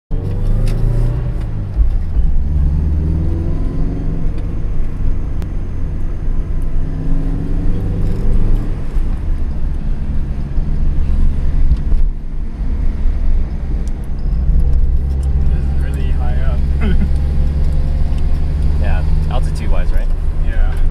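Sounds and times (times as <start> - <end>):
car engine running: 0.1 - 20.9
road and tyre rumble: 0.1 - 20.9.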